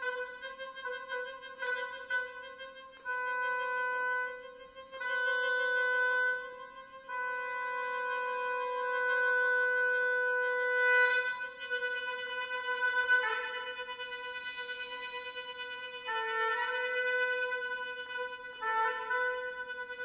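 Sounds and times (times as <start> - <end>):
oboe sustained notes: 4.2 - 20.0.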